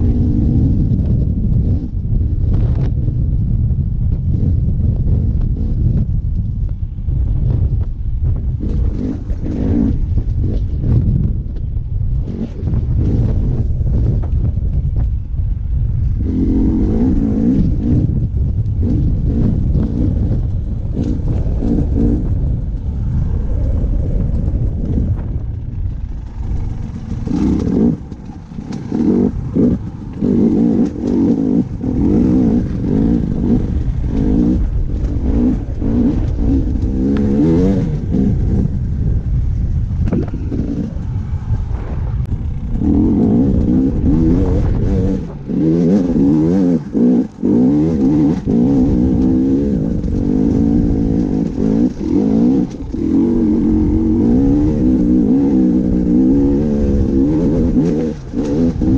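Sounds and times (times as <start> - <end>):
dirt bike engine revving: 8.4 - 11.3, 12.1 - 58.9.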